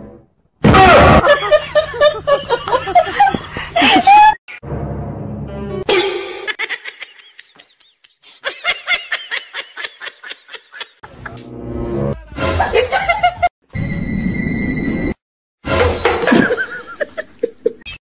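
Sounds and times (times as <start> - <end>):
person giggling: 5.9 - 11.4, 12.1 - 13.5, 16.3 - 17.9.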